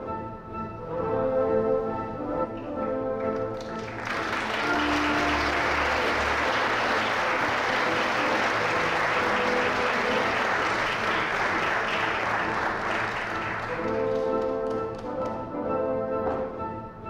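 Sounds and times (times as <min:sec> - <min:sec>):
audience applause: 0:03.5 - 0:15.4.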